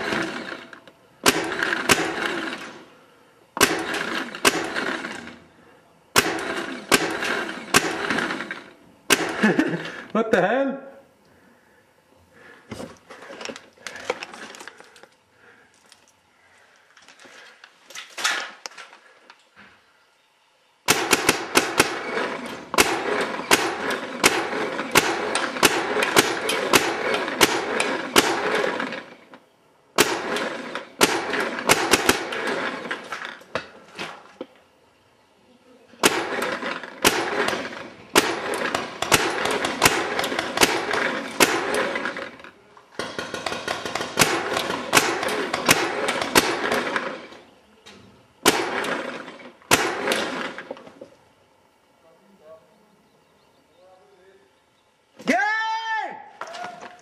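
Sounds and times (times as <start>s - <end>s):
airsoft guns firing rapid bursts: 0.0s - 2.8s, 3.6s - 5.3s, 6.2s - 8.4s, 20.9s - 29.1s, 30.0s - 33.2s, 36.0s - 42.3s, 43.0s - 47.3s, 48.4s - 50.6s.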